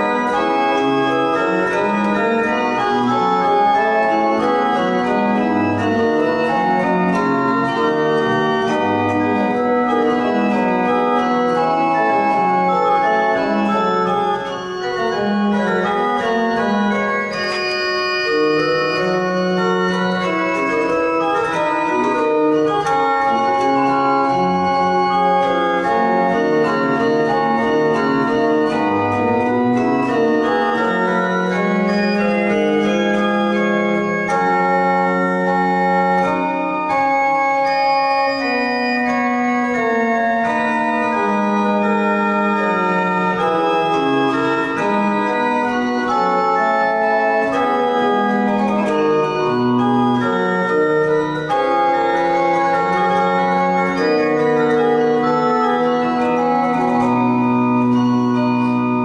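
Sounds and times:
pipe organ playing slowly: 0.0 - 59.0.

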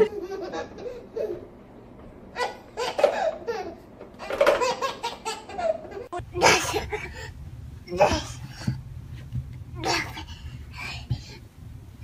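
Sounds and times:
baby laughing: 0.0 - 1.5, 2.4 - 7.1.

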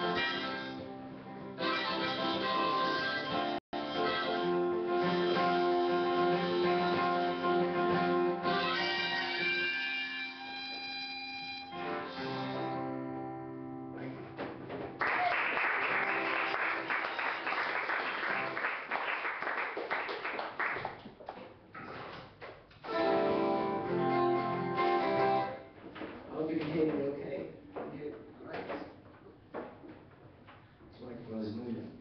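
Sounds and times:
harmonica: 0.0 - 14.3, 22.8 - 25.7
acoustic guitar notes: 22.8 - 25.8.

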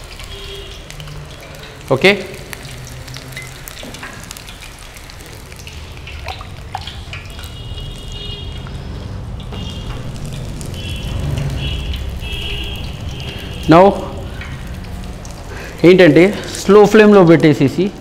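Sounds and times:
oil popping: 0.0 - 17.7
vegetables deep-frying in oil: 0.0 - 18.0.

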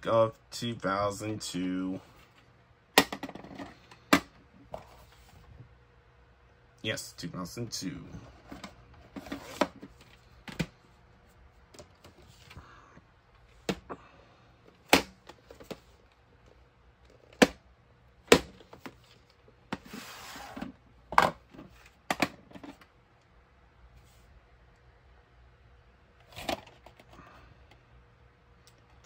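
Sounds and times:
cassette sliding from sleeve: 19.8 - 20.7.

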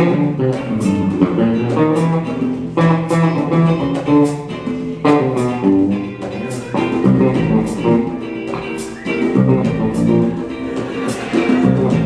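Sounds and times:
jazz funk band playing: 0.0 - 12.0.

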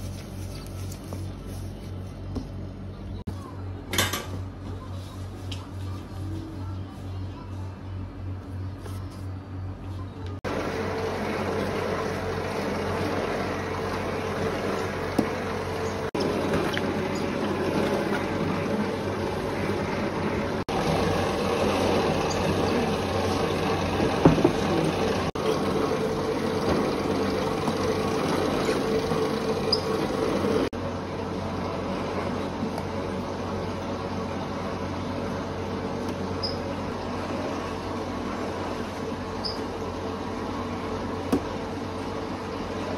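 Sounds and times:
bakery machinery motor hum: 0.0 - 42.9.

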